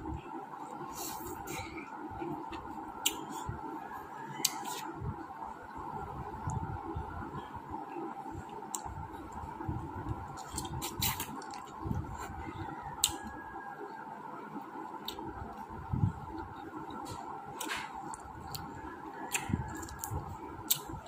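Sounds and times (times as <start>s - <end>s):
steady background hum: 0.0s - 21.0s
wet squishy chewing: 4.2s - 4.9s, 8.4s - 13.5s, 16.3s - 21.0s.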